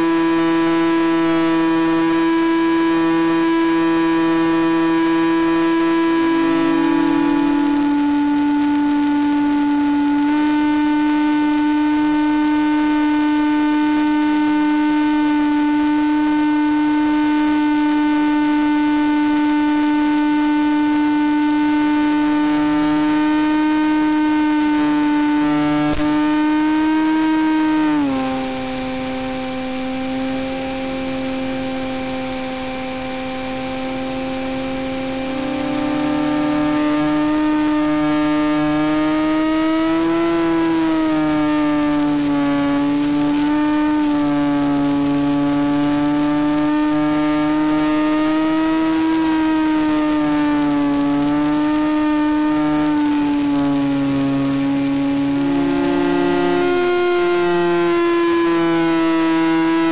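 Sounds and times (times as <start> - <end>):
electric motor and propeller drone: 0.0 - 59.9
high faint whine: 5.9 - 18.1, 27.7 - 58.6.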